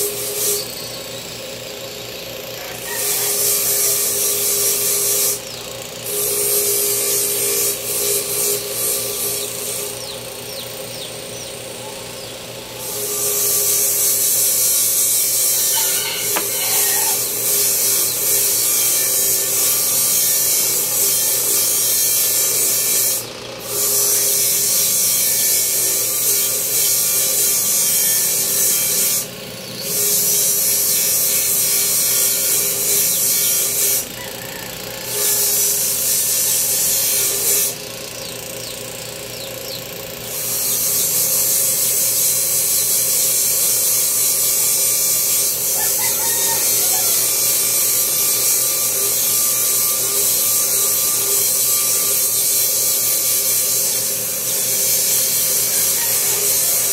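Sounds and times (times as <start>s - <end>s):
power tool grinding: 0.0s - 56.9s.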